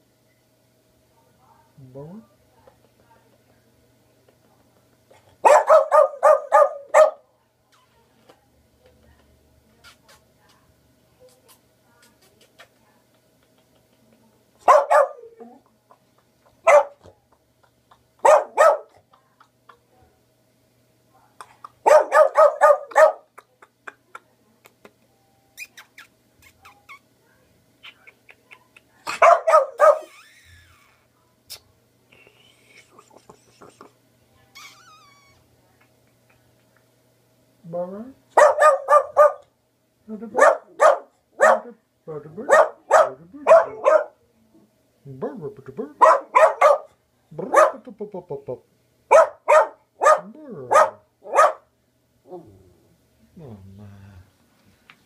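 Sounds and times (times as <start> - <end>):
small dog barking: 5.4 - 7.2, 14.6 - 15.5, 16.6 - 17.1, 18.2 - 19.0, 21.8 - 23.4, 29.1 - 30.1, 38.4 - 39.5, 40.4 - 41.8, 42.4 - 44.2, 46.0 - 47.9, 49.1 - 51.7.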